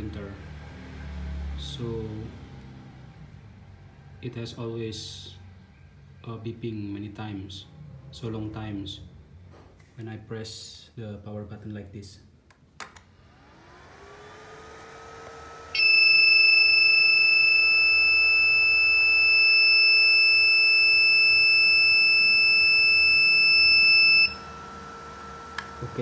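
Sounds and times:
fan spinning up hum: 0:00.0 - 0:09.9, 0:12.3 - 0:26.0
long high-pitched beep: 0:15.8 - 0:24.5.

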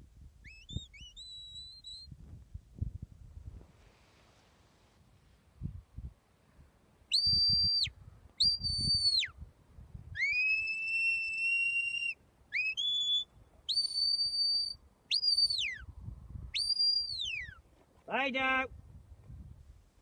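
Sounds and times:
sharp high whistles: 0:00.4 - 0:02.1, 0:07.1 - 0:09.4, 0:10.2 - 0:15.9, 0:16.6 - 0:17.6.

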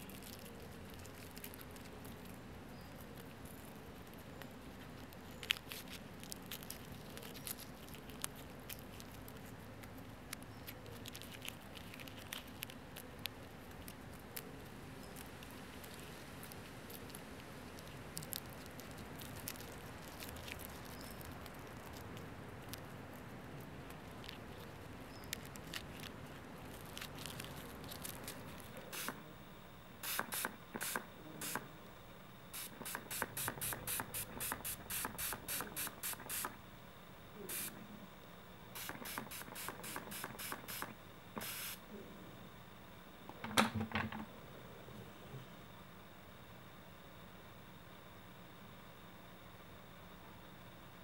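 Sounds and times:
spray bottle squirts: 0:30.0 - 0:31.6, 0:32.6 - 0:36.6, 0:38.8 - 0:41.8.

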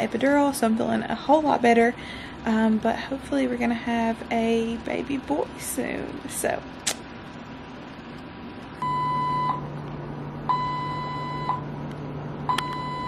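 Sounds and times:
steady low hum: 0:00.0 - 0:13.0
electronic alarm beeping: 0:08.8 - 0:09.7, 0:10.5 - 0:11.6, 0:12.5 - 0:13.0.

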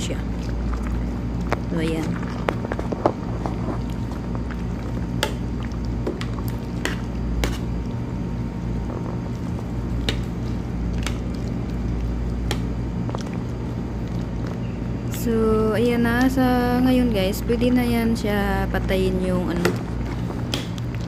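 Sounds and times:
food squishing and sloshing in broth: 0:00.0 - 0:15.3, 0:18.9 - 0:21.0
low hum: 0:00.0 - 0:21.0.

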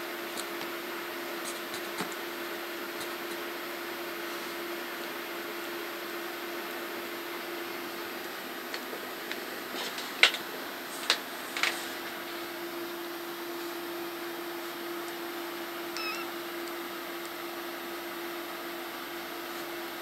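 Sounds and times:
low electrical hum: 0:00.0 - 0:20.0
kitten mewing: 0:16.0 - 0:16.4.

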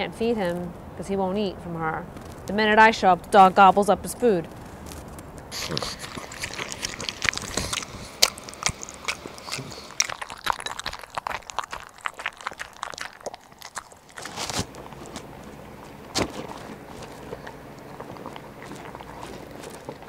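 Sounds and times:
dog chewing and licking food: 0:04.5 - 0:20.0.

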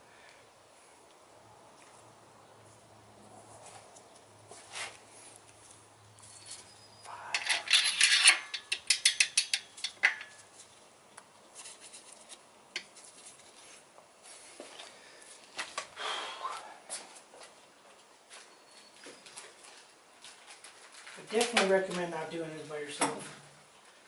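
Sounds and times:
metal scraping: 0:06.2 - 0:10.6
metal engine parts clinking: 0:07.3 - 0:10.5.

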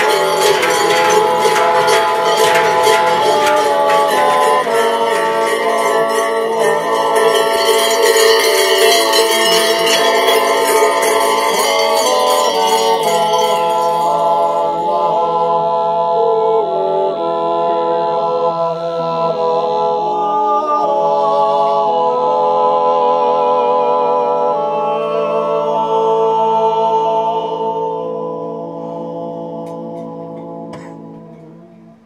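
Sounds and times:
bells ringing: 0:00.0 - 0:15.3
men singing wordless yodel chords: 0:00.0 - 0:32.0.

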